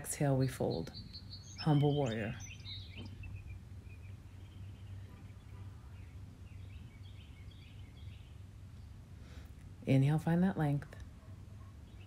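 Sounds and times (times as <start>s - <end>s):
steady low rumble: 0.0s - 11.7s
faint bird chirps: 0.4s - 9.0s.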